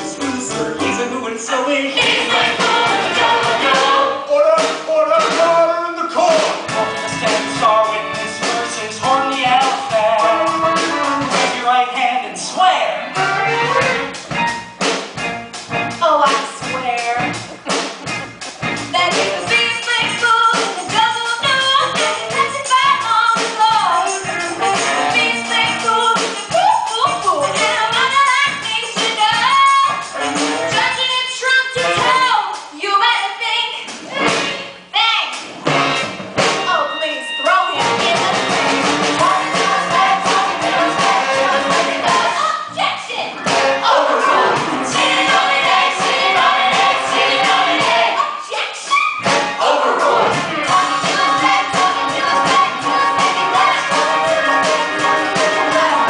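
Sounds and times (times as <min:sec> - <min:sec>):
cast singing: 0:00.0 - 0:04.7, 0:43.3 - 0:48.5, 0:49.3 - 0:56.0
instrumental accompaniment: 0:00.0 - 0:11.8, 0:13.0 - 0:32.4, 0:33.9 - 0:48.2, 0:49.2 - 0:56.0
singers with band: 0:00.0 - 0:14.1, 0:18.9 - 0:32.4, 0:36.4 - 0:56.0.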